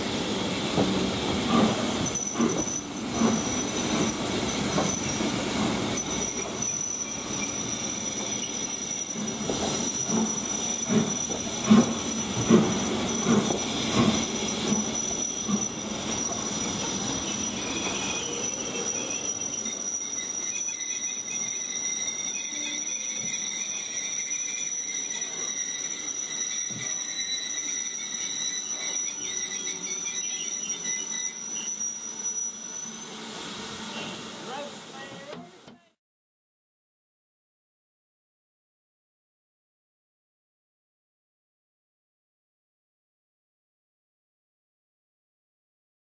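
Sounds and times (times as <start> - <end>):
train wheels and brakes squealing: 0.0 - 35.6.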